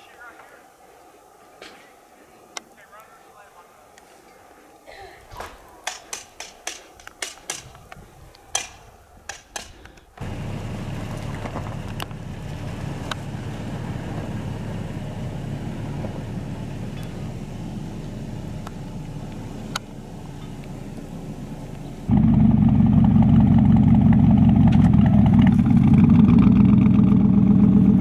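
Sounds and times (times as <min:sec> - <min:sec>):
sharp clicks: 0:05.8 - 0:10.1
pickup truck engine running: 0:10.2 - 0:28.0.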